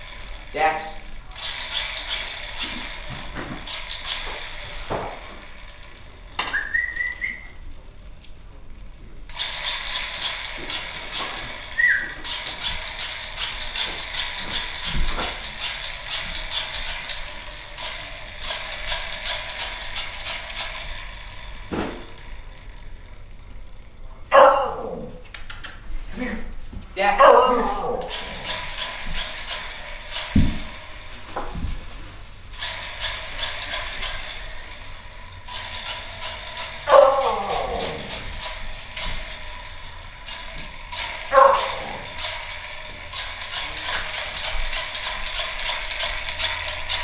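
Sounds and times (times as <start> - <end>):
toy bubble machine whirring: 0.0 - 25.0, 25.8 - 47.0
short squeak: 6.5 - 7.6, 11.8 - 12.2.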